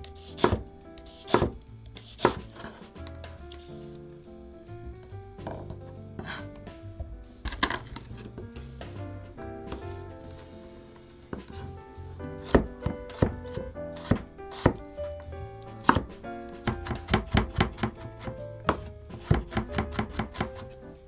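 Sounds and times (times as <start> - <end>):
knife chopping on wooden board: 0.2 - 3.1, 7.5 - 8.4, 12.4 - 14.8, 15.8 - 20.8.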